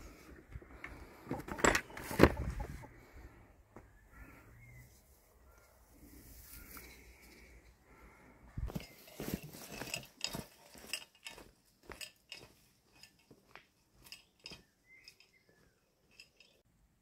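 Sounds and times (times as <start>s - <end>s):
footsteps crunching on dry twigs: 8.6s - 14.1s.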